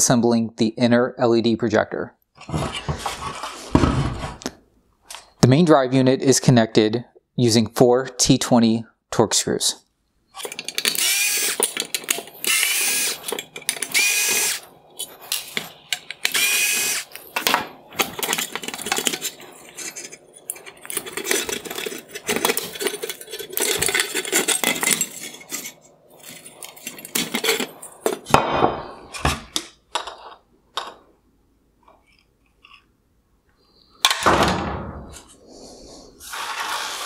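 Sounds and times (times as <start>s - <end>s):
electric screwdriver whirring: 10.4s - 14.7s, 15.3s - 17.2s
plastic and metal parts rattling: 10.4s - 28.4s.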